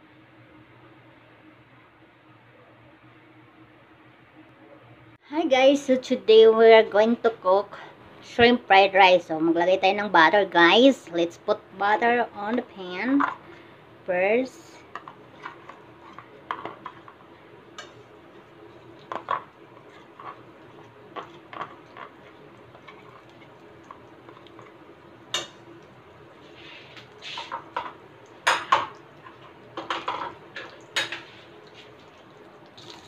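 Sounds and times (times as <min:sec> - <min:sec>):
butter sizzling in a wok: 0:14.5 - 0:33.0
kitchenware clinking: 0:27.3 - 0:31.4.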